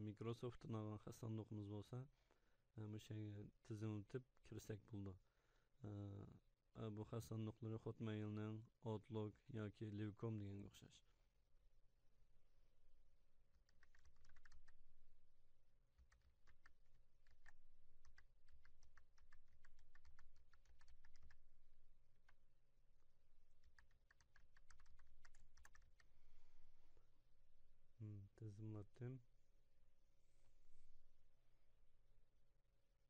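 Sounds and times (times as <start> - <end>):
faint keyboard typing: 13.6 - 15.1, 15.9 - 22.5, 23.4 - 26.3.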